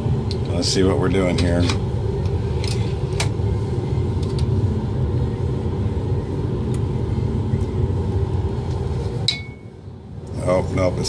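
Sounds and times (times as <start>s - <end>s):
fume hood exhaust rumble: 0.0s - 11.0s.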